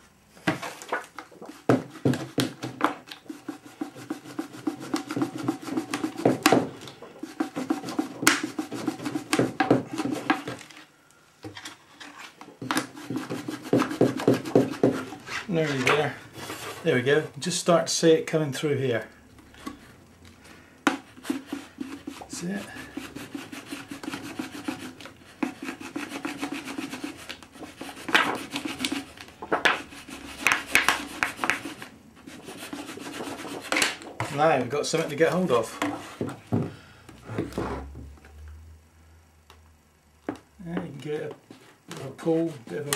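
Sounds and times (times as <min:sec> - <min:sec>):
plastic sheet rubbing on mould: 0:00.6 - 0:10.8, 0:11.9 - 0:17.1, 0:21.0 - 0:36.2.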